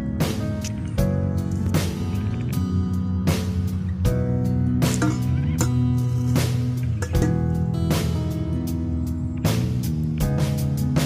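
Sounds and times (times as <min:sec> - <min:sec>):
background music sustained tones: 0:00.0 - 0:11.0
drum hits: 0:04.8 - 0:08.3.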